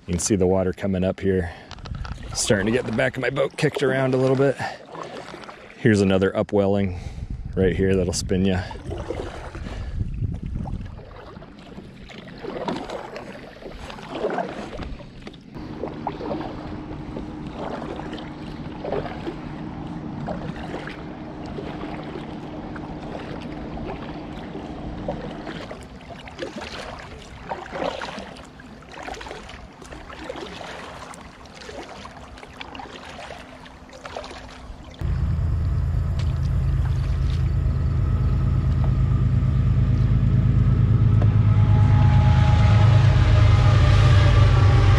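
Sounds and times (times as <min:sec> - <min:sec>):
paddle splashing in water: 0:01.6 - 0:06.0, 0:08.7 - 0:35.1, 0:36.2 - 0:37.8
wind on microphone: 0:01.8 - 0:02.9, 0:06.9 - 0:11.3
steady low hum: 0:15.4 - 0:27.8, 0:34.5 - 0:44.9.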